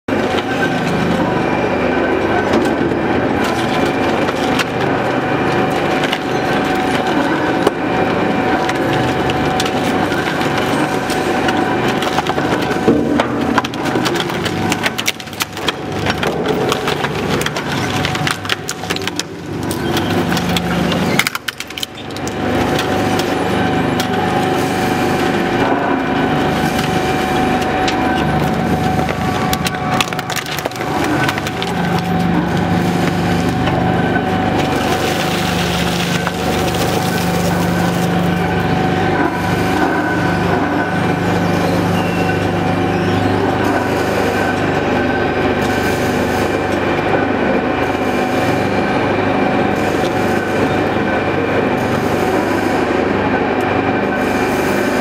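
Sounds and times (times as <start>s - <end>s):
shredder tearing through waste: 0.1s - 55.0s
cracking and snapping: 3.4s - 23.4s, 26.5s - 33.8s.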